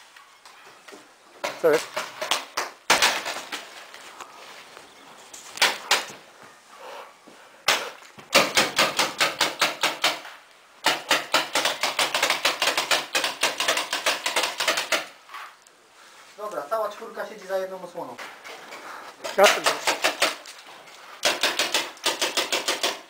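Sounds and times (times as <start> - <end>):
paintball markers firing: 7.7 - 15.2, 19.3 - 20.6, 21.2 - 23.0.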